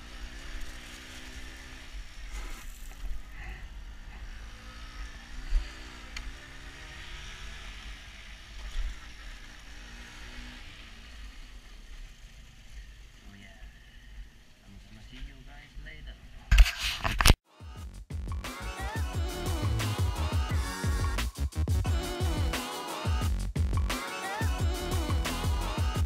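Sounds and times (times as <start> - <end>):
moped engine running: 0.0 - 14.6.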